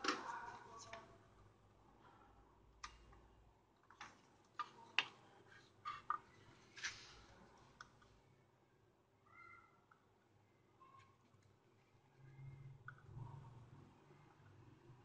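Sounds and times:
faint clicks and taps: 2.8 - 3.2, 3.8 - 7.0.

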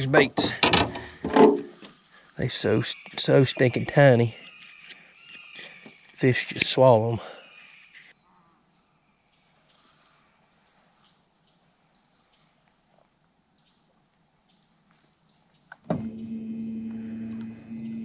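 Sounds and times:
faint insect buzz: 1.0 - 18.0
electric motor humming: 15.9 - 18.0.

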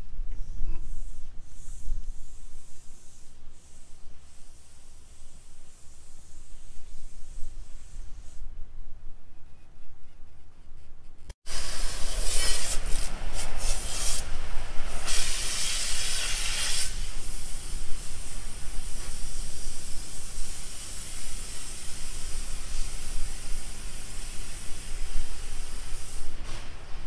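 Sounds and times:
loud hissing rushes: 11.5 - 27.0.

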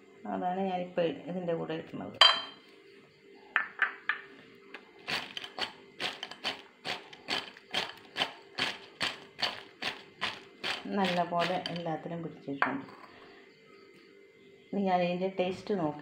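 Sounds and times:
fritters knocking on ceramic plate: 3.6 - 4.2.

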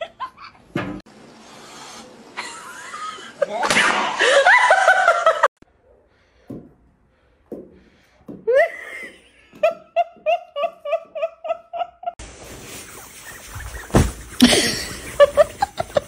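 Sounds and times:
person laughing in a high voice: 13.7 - 16.0.

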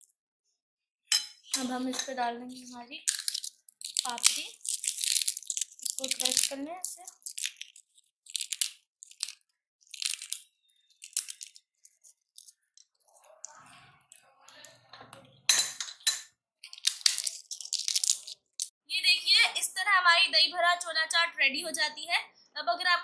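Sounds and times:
crackers crunching by hand: 2.5 - 14.3, 16.6 - 18.7.

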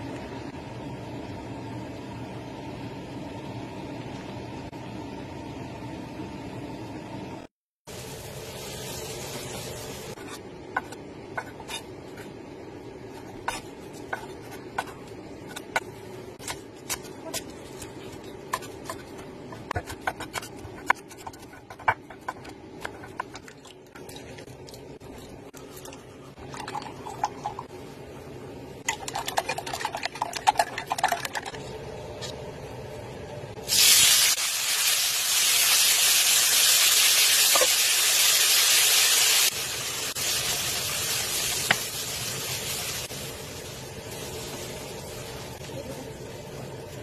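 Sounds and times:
vegetables sizzling in hot oil: 7.9 - 11.0, 33.6 - 47.0
chopsticks whisking eggs in glass: 28.9 - 31.6.

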